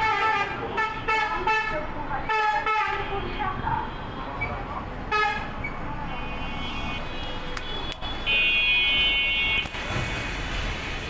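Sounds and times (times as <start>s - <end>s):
street traffic: 0.0s - 11.0s
vehicle horn blast: 6.2s - 9.8s.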